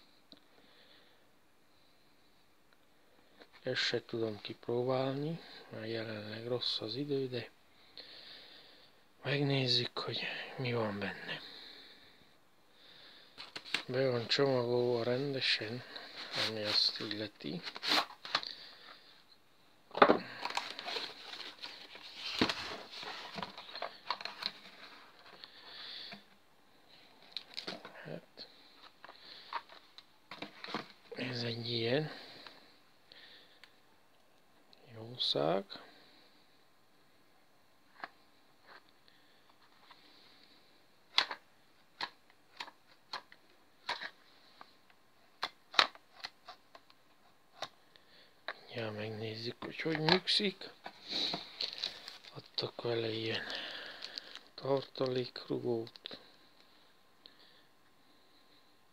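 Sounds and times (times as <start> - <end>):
cardboard sliding and rustling: 20.4 - 25.2.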